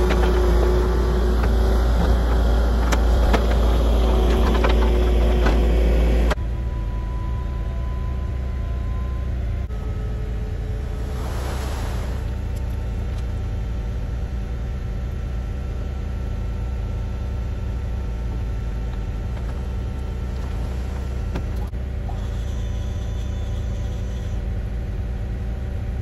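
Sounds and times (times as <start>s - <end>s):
heavy engine running: 0.0s - 26.0s
faint high whine: 6.3s - 26.0s.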